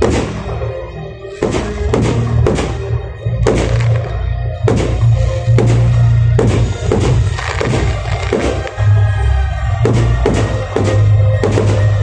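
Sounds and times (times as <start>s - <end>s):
loud music with heavy bass: 0.0s - 12.0s
firework shells bursting: 3.4s - 8.9s, 9.8s - 12.0s.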